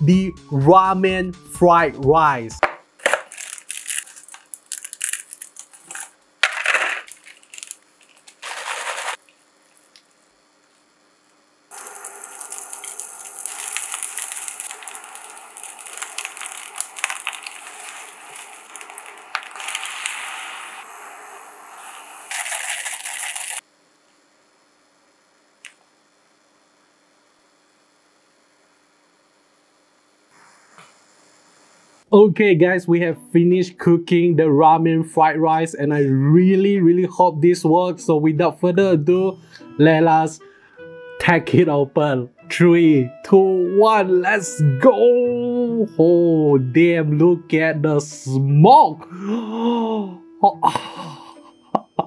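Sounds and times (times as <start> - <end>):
packaging crinkling and tearing: 3.0 - 10.2, 11.7 - 20.9, 22.3 - 23.6
rice sizzling in a frying pan: 3.0 - 10.5, 11.7 - 23.7.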